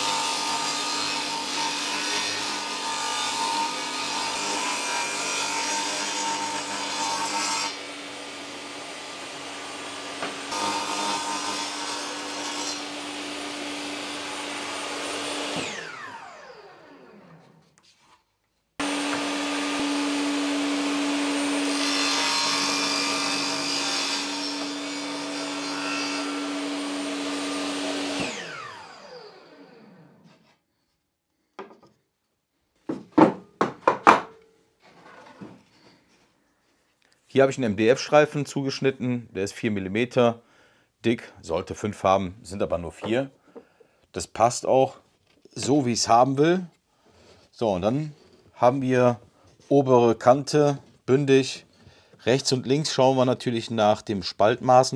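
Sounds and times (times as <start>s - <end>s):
table saw cutting wood: 0.0s - 17.6s, 18.8s - 30.4s
saw winding down: 14.2s - 17.6s, 18.8s - 21.7s, 26.3s - 30.2s
sharp wooden knocks: 32.9s - 34.4s.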